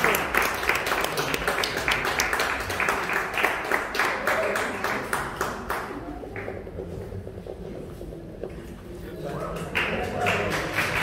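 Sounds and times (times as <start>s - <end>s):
audience applauding: 0.0s - 7.0s, 9.2s - 11.0s.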